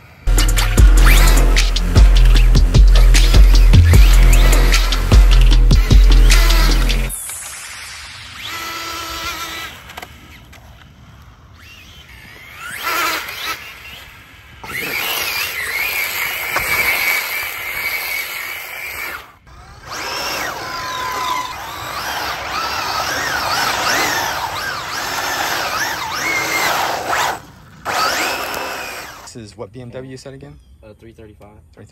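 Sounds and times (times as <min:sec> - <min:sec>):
electric rc car motors whining: 0:00.0 - 0:29.4
tyres sliding on asphalt: 0:20.0 - 0:29.3.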